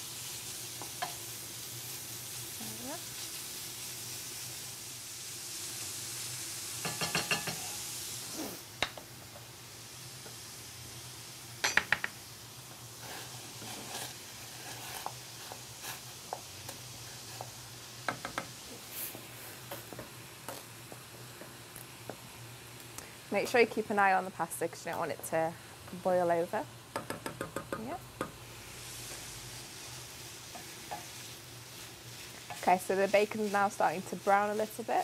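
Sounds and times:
bacon sizzling in oil: 0:00.0 - 0:35.0
utensils knocking against pans: 0:06.8 - 0:07.6, 0:11.6 - 0:12.1.

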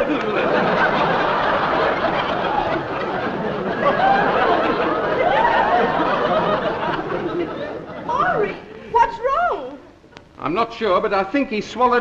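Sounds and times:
audience laughing: 0:00.0 - 0:08.8.

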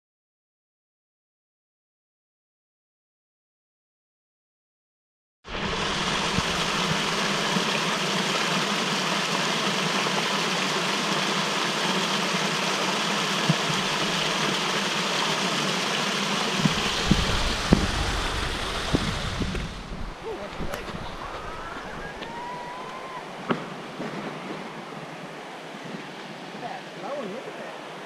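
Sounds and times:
waterfall splashing into pool: 0:05.5 - 0:24.7
low rumble: 0:16.5 - 0:22.2.

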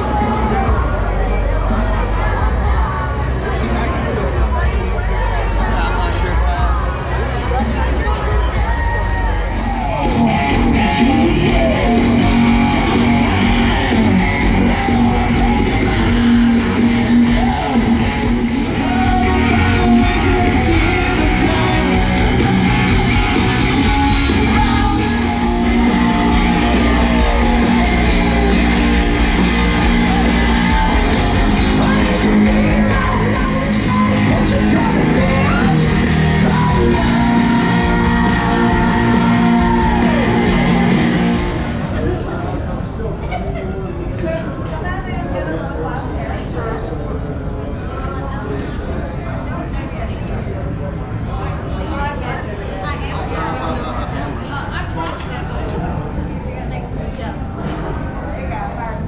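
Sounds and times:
live rock band playing: 0:00.0 - 0:06.9, 0:07.5 - 0:42.1
crowd shouting: 0:00.0 - 0:42.4.

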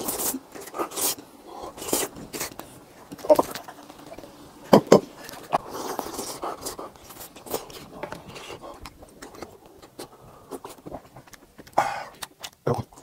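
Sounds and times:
man chewing and slurping: 0:00.0 - 0:13.0.

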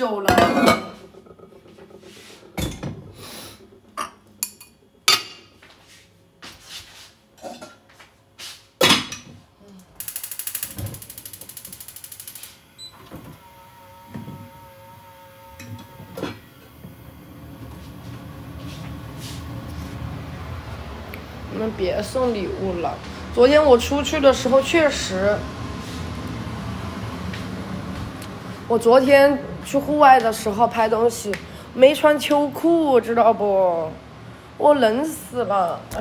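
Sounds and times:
pots and pans clanking: 0:00.2 - 0:05.5
rapid even ticking: 0:10.0 - 0:12.6.

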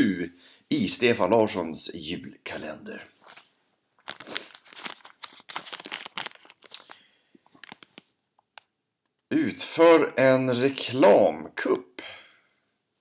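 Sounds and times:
paper tearing and crinkling: 0:03.2 - 0:06.8.

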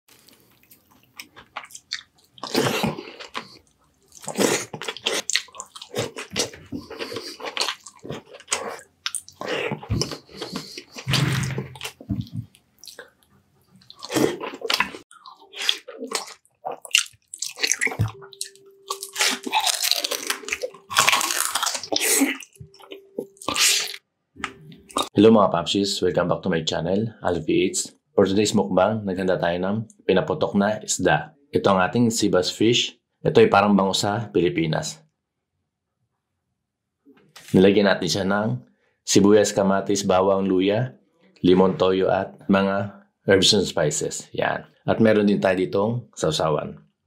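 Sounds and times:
person chewing and biting: 0:00.1 - 0:25.1.

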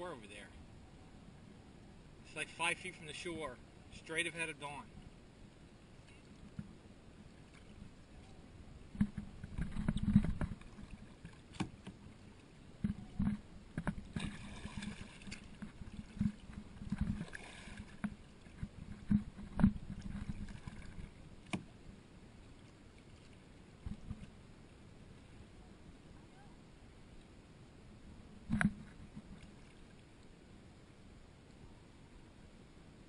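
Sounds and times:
paddle strokes splashing: 0:06.0 - 0:21.8, 0:22.4 - 0:25.4
knocks and thumps through hull: 0:09.0 - 0:12.0, 0:12.8 - 0:21.7, 0:23.8 - 0:24.3.

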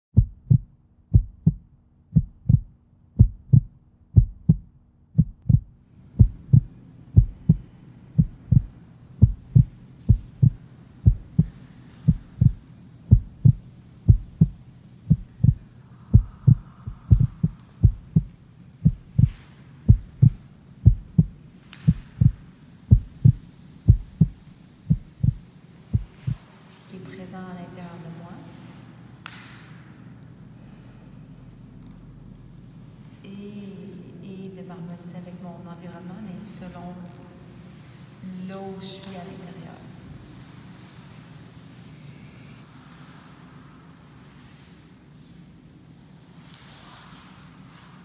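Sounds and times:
heartbeat-like thumping beat: 0:00.1 - 0:26.4
faint room noise: 0:00.2 - 0:48.0.

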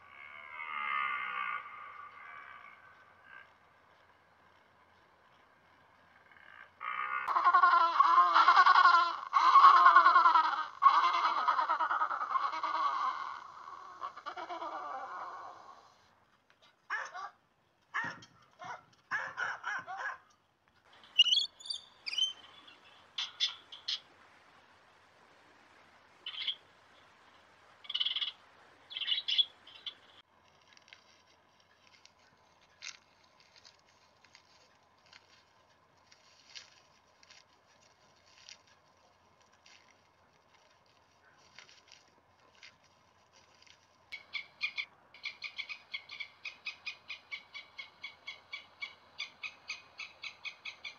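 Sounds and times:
faint steady hum: 0:00.0 - 0:50.9
faint scattered clicks: 0:01.8 - 0:06.6
penguin braying: 0:06.8 - 0:16.0
lorikeet shrill calls: 0:21.0 - 0:24.0, 0:26.3 - 0:26.6, 0:27.9 - 0:30.0, 0:44.2 - 0:50.9.

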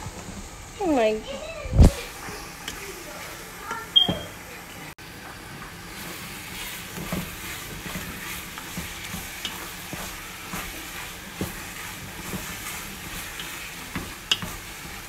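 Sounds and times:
wooden spoon scraping metal pot: 0:06.0 - 0:15.0.

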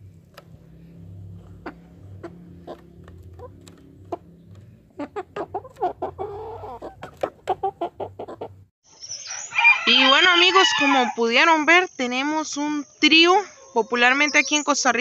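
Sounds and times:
chickens clucking: 0:01.2 - 0:08.7.

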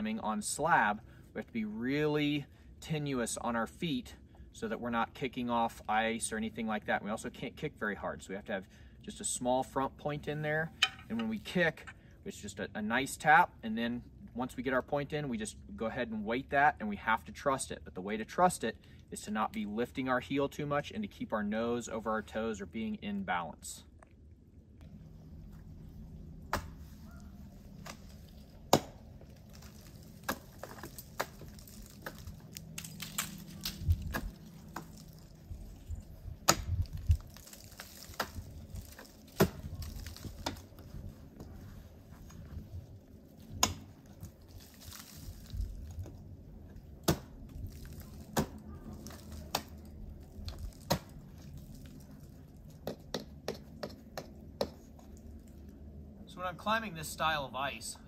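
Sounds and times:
low rumble: 0:24.2 - 0:30.3, 0:31.5 - 0:37.3
ice axe striking ice: 0:28.7 - 0:35.2, 0:37.4 - 0:40.6, 0:47.0 - 0:49.8, 0:50.6 - 0:51.2.

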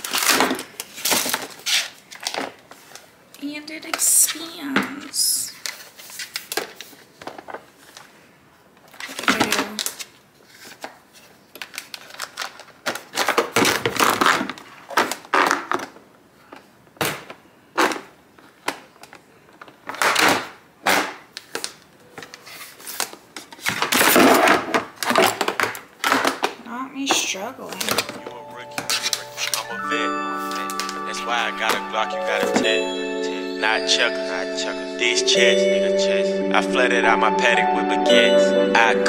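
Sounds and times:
plastic trays clacking and knocking: 0:23.4 - 0:28.2.

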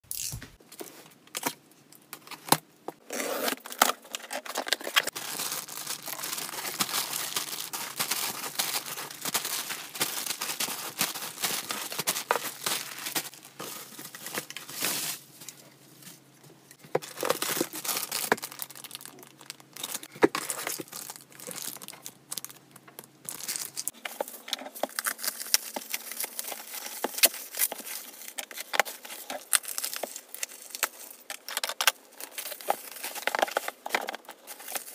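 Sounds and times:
plastic tearing: 0:03.0 - 0:13.3, 0:17.0 - 0:22.6
plastic bags and bubble wrap crinkling: 0:03.0 - 0:34.9.

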